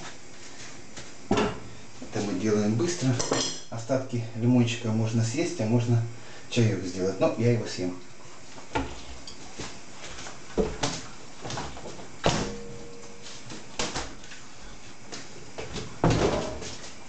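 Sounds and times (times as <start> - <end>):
kitchen knocks and clunks: 1.3 - 1.6, 15.6 - 16.7.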